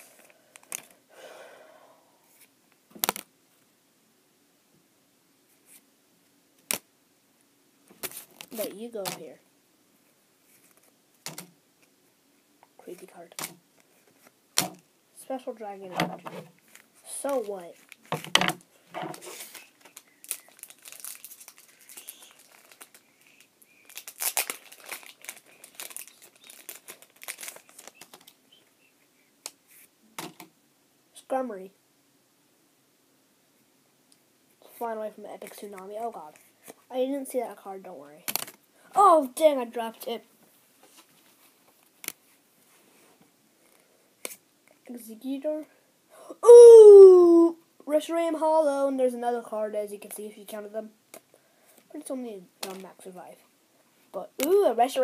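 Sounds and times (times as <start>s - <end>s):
trading cards rustling: 19.0s - 28.4s
foil wrapper crinkling: 19.1s - 28.4s.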